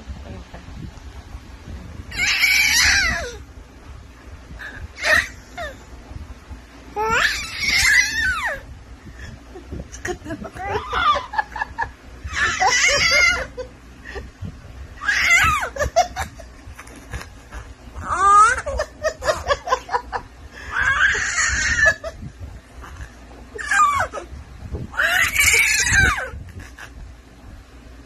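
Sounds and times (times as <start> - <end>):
baby laughing and squealing: 2.1 - 3.4, 4.7 - 5.8, 7.0 - 8.7, 10.5 - 13.7, 15.0 - 20.0, 20.6 - 24.3, 24.9 - 27.0.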